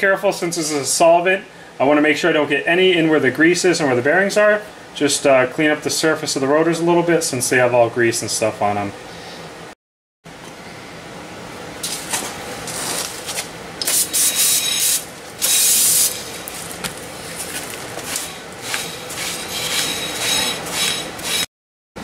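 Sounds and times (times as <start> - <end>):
rag rubbing metal: 18.2 - 21.5.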